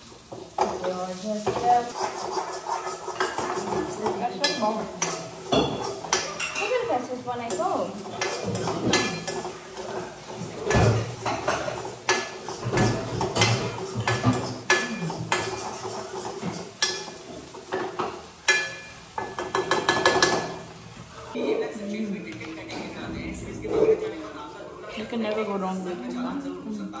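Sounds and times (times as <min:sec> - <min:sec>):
metal spatula scraping in wok: 0:01.2 - 0:06.8.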